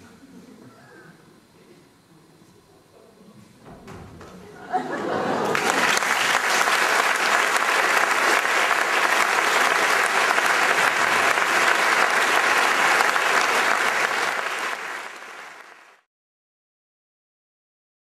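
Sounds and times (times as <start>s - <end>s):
audience applauding: 4.9s - 16.1s.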